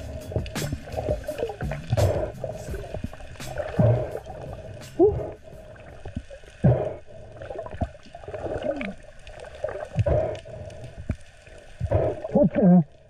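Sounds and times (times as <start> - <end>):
dull low thuds: 0.0 - 5.8
gurgling underwater water: 0.0 - 13.0.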